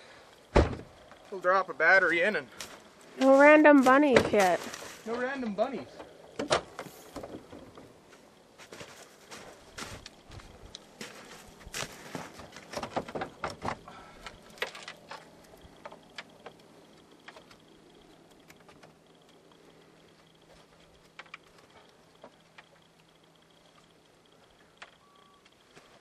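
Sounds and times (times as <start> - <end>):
clicks and knocks in engine bay: 12.5 - 16.6.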